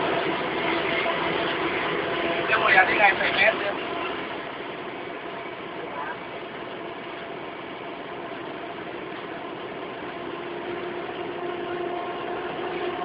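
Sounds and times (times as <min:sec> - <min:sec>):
locomotive engine running: 0:00.0 - 0:13.0
humming tone: 0:08.4 - 0:13.0.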